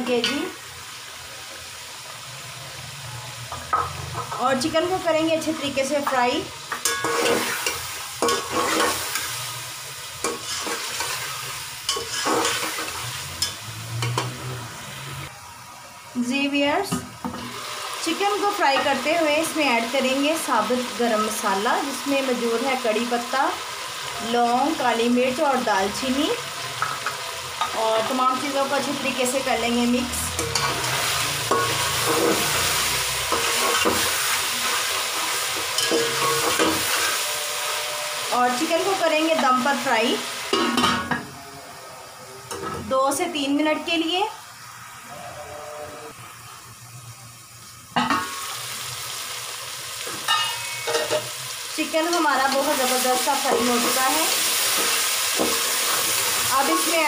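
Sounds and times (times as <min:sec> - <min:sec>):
chicken sizzling in oil: 0:00.0 - 0:42.5, 0:43.3 - 0:57.0
metal spatula scraping pot: 0:10.2 - 0:14.5.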